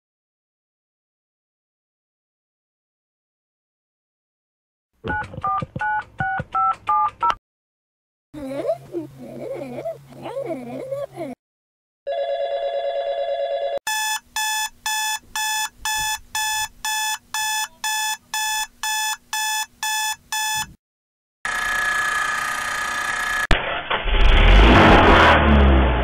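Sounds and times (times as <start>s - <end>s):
electronic alarm beeping: 13.9s - 20.7s.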